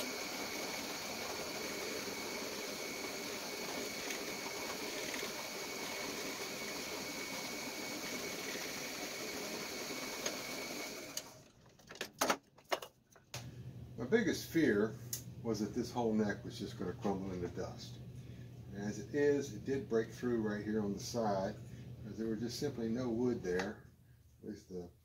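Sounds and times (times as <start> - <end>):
drill press boring into wood: 0.0 - 11.4.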